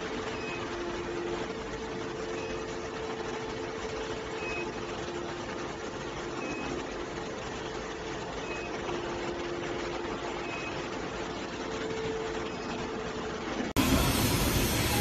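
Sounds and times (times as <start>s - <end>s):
machinery rush and hum: 0.0s - 15.0s.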